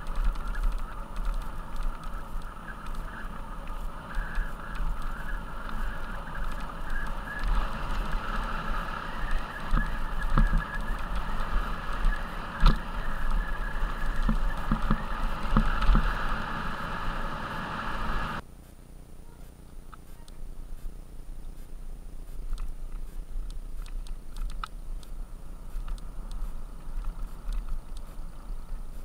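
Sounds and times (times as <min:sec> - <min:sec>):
bike tyres crunching on gravel: 0:00.0 - 0:18.4
wind rumble on microphone: 0:00.0 - 0:18.4.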